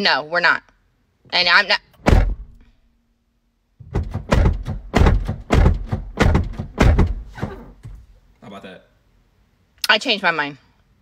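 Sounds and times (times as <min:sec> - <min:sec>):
car door slamming: 0:02.0 - 0:02.6, 0:03.8 - 0:08.1
car door thuds and rattles: 0:02.0 - 0:02.6, 0:03.8 - 0:08.1.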